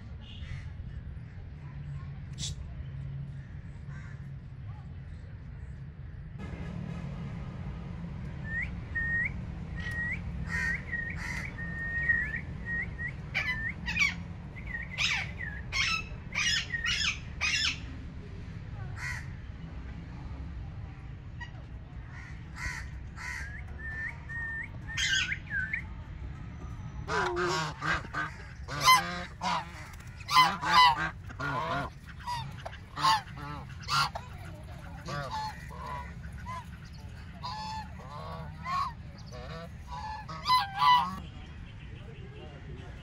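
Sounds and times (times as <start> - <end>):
geese and ducks honking: 9.8 - 17.8, 27.1 - 41.4.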